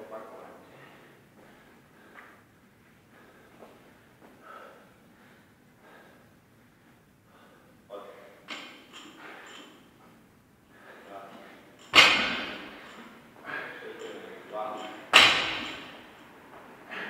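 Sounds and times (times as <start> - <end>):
man breathing hard: 0.6 - 9.8, 10.7 - 11.8, 12.6 - 14.1, 16.8 - 17.0.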